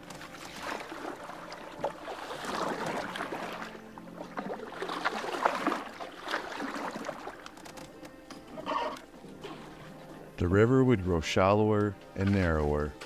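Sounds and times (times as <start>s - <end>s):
canoe paddle splashing in water: 0.0s - 8.0s.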